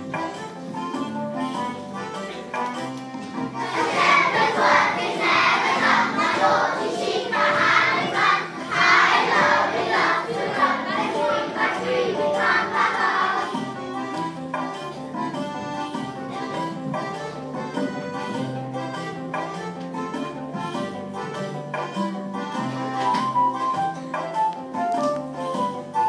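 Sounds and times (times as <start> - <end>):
instrumental music: 0.0 - 26.0
children singing: 3.5 - 14.1.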